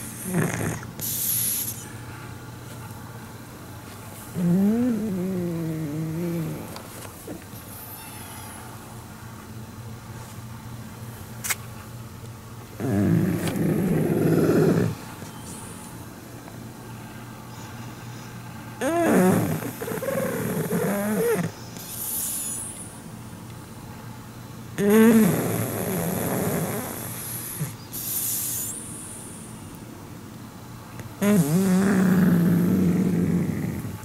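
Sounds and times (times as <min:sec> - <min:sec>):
dog snoring: 0:00.0 - 0:01.8, 0:04.3 - 0:06.8, 0:12.8 - 0:15.0, 0:18.8 - 0:22.8, 0:24.8 - 0:28.9, 0:31.2 - 0:34.0.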